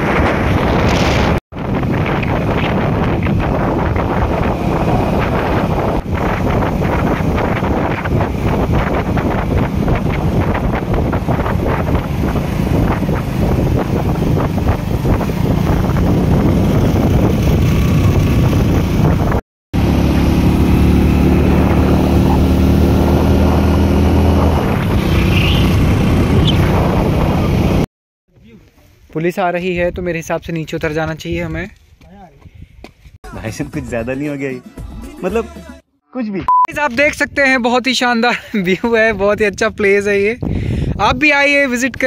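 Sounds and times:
wind buffeting microphone: 0:00.0 - 0:19.4, 0:20.0 - 0:27.9, 0:39.2 - 0:42.0
motorcycle engine running: 0:02.8 - 0:27.8.

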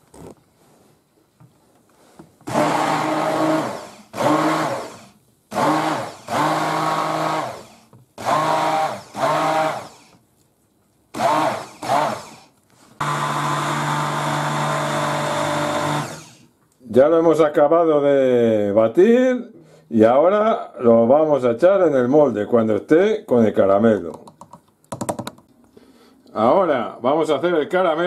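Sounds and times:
immersion blender blending liquid: 0:02.5 - 0:10.2, 0:11.1 - 0:16.5.

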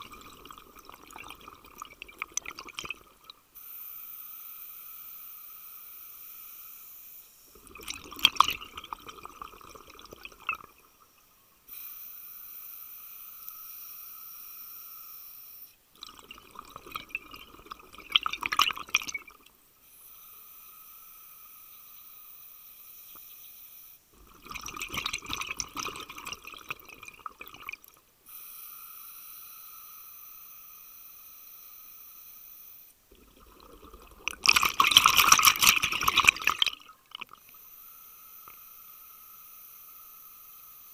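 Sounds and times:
exhaled air bubbling: 0:00.0 - 0:03.5, 0:07.5 - 0:11.1, 0:15.9 - 0:19.5, 0:24.1 - 0:28.0, 0:33.1 - 0:37.6
regulator inhale hiss: 0:03.5 - 0:07.6, 0:11.6 - 0:15.8, 0:28.2 - 0:33.0, 0:37.4 - 0:40.9.

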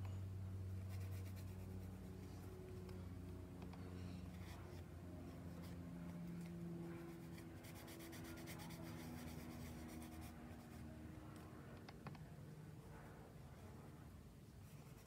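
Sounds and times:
low steady hum: 0:00.0 - 0:15.0
scratchy paper strokes: 0:00.8 - 0:02.4, 0:04.2 - 0:10.8.

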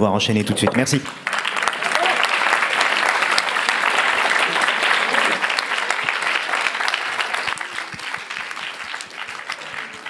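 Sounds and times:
audience applauding: 0:00.7 - 0:10.0.

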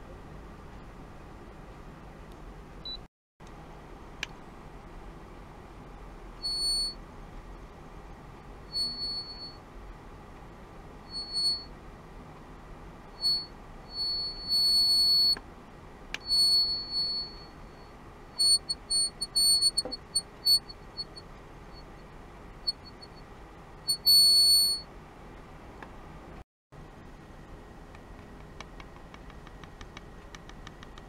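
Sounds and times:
high-pitched electronic tone: 0:08.7 - 0:09.6, 0:13.2 - 0:15.4, 0:16.2 - 0:21.9, 0:23.9 - 0:24.9.

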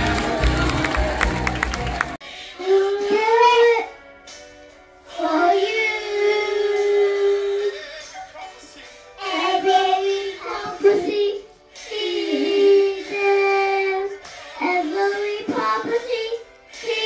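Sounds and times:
girl singing into toy microphone: 0:02.5 - 0:04.0, 0:05.1 - 0:08.6, 0:09.2 - 0:17.0.

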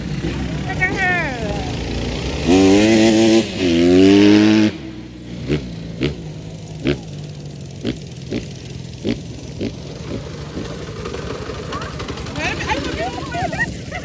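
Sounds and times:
off-road vehicle engine revving: 0:00.0 - 0:14.0.

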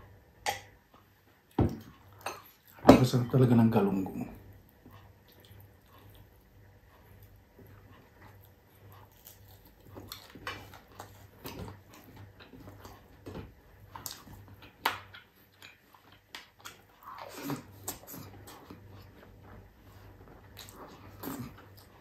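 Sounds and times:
chewing and lip smacking: 0:05.0 - 0:22.0.

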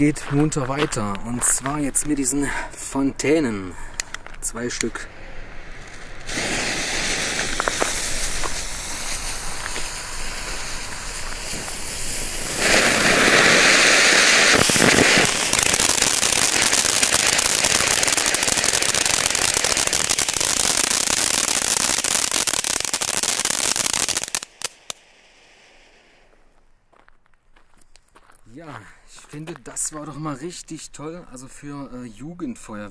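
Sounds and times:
firework fountains hissing crackle: 0:04.6 - 0:26.4.

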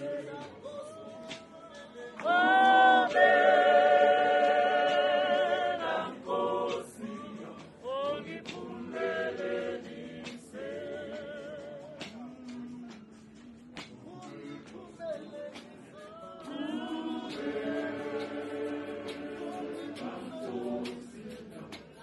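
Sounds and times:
choir singing a hymn: 0:00.0 - 0:13.0, 0:14.2 - 0:22.0.

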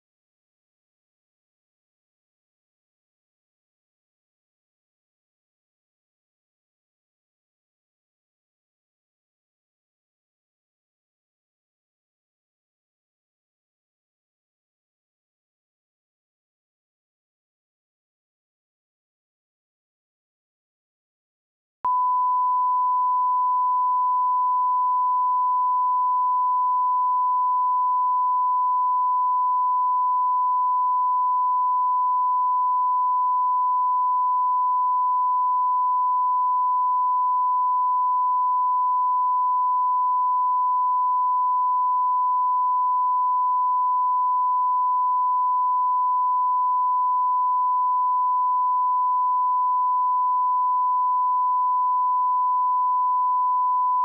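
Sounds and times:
steady sine test tone: 0:21.9 - 0:54.0.

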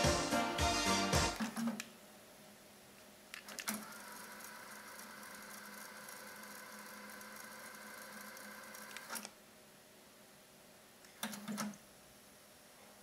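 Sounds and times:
cassette deck rewinding whir: 0:03.6 - 0:09.3.

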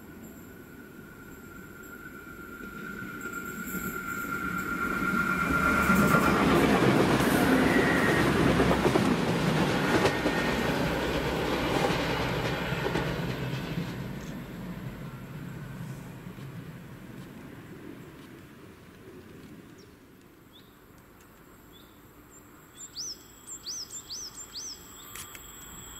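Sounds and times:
high whine: 0:00.0 - 0:17.0, 0:22.7 - 0:25.9
diesel train passing: 0:00.0 - 0:20.0, 0:22.0 - 0:25.9.

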